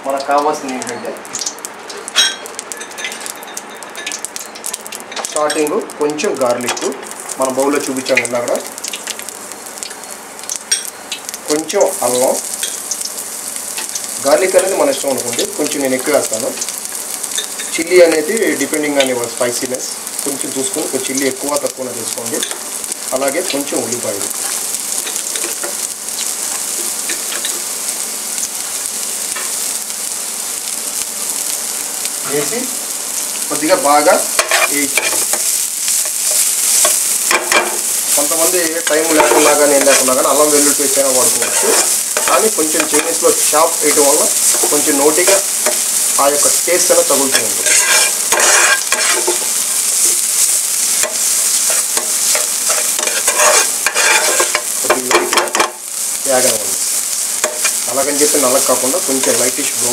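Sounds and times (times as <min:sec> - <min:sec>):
vegetables sizzling in hot oil: 0:00.0 - 0:59.9
metal spoon scraping a pan: 0:34.3 - 0:37.9, 0:38.8 - 0:40.3, 0:41.2 - 0:43.2, 0:47.2 - 0:49.9, 0:50.5 - 0:55.8.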